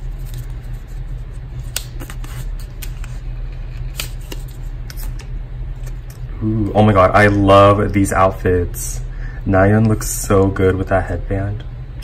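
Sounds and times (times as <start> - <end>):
paper rustling: 0.0 - 5.2
steady low hum: 0.0 - 12.0.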